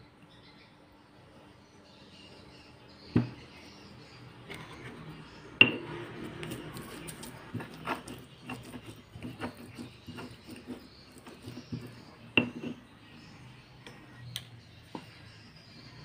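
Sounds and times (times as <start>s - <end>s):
pestle grinding: 5.6s - 12.8s
pestle pounding in stone mortar: 5.6s - 12.8s.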